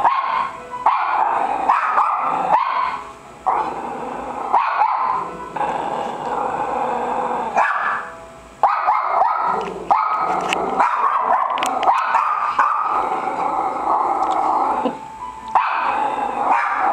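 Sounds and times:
small dogs yipping and barking: 0.0s - 3.0s, 4.5s - 5.2s, 7.6s - 13.0s.

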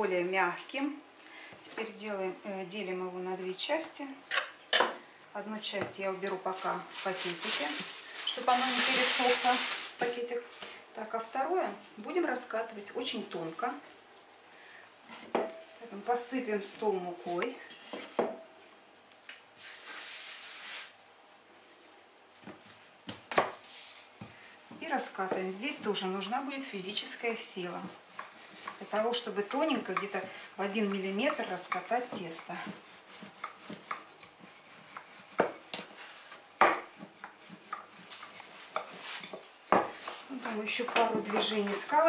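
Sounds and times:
soft rubbing hiss of dough: 5.0s - 42.0s
dough knocking on wooden board: 35.0s - 35.9s, 36.6s - 39.0s, 40.8s - 41.8s.

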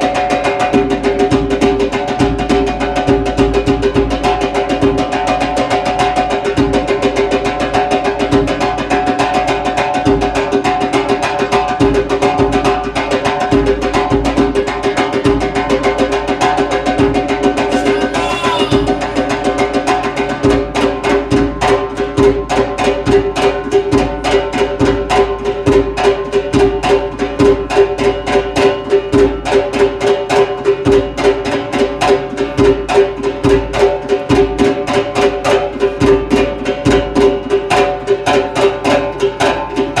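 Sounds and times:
goblet drum beating fast: 15.8s - 25.2s
low held tone: 17.6s - 20.4s.

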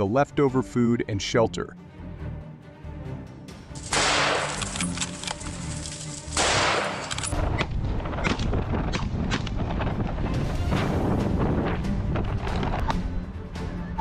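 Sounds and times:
background music: 0.0s - 14.0s
echoing gunshots: 3.8s - 4.8s, 6.3s - 7.4s
sharp cracks: 3.8s - 9.8s.

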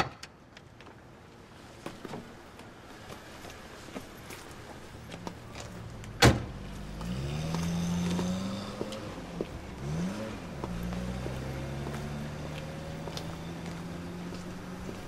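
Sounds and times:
car engine pulling away: 5.4s - 15.0s
car door slamming: 6.2s - 6.5s.

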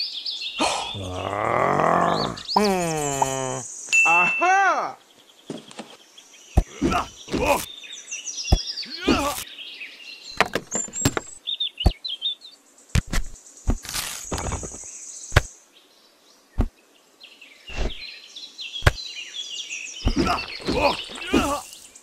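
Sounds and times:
birds chirping: 0.0s - 22.0s
high insect drone: 0.8s - 4.3s.

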